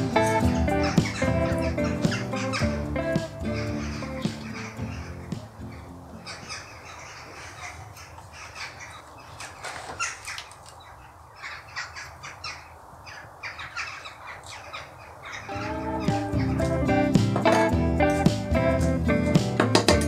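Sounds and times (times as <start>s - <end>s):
crows cawing: 0.1s - 16.7s.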